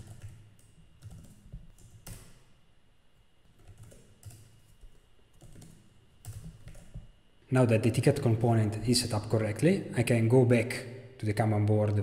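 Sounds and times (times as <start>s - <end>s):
keyboard typing: 0.0s - 2.5s, 3.4s - 7.1s.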